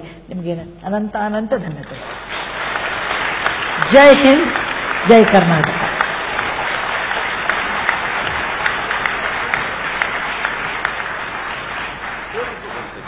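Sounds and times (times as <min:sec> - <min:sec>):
audience applauding: 0:01.9 - 0:13.0.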